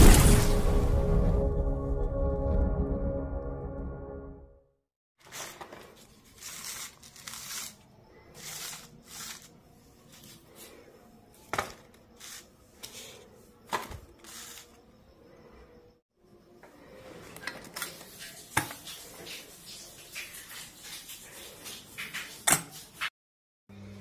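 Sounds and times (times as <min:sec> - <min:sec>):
vegetables rustling in mesh basket: 0:05.2 - 0:10.8.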